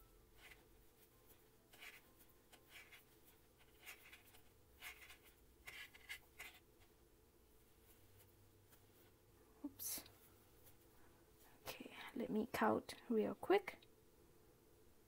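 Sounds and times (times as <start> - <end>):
low room hum: 0.0 - 15.0
yarn scraping over crochet hook: 0.4 - 6.7.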